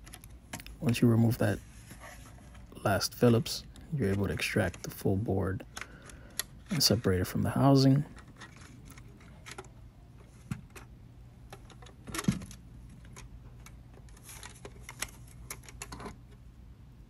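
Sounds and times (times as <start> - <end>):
plastic and metal parts rattling: 11.5 - 16.2.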